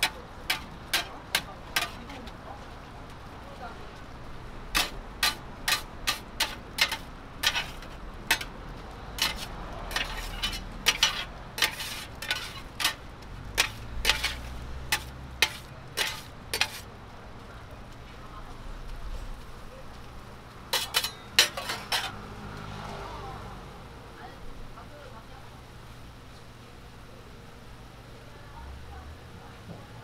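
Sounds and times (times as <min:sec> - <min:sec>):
metal scrapers clacking on griddle: 0:00.0 - 0:02.6, 0:04.7 - 0:18.2, 0:20.6 - 0:22.3.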